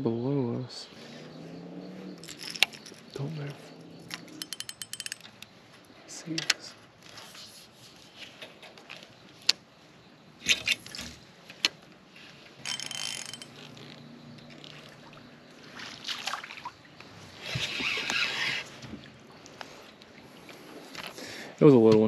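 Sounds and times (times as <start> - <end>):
fishing rod clicks and knocks: 2.2 - 3.1, 4.1 - 5.5, 12.6 - 14.9
reel cranking rattle: 4.4 - 5.5, 12.6 - 14.0.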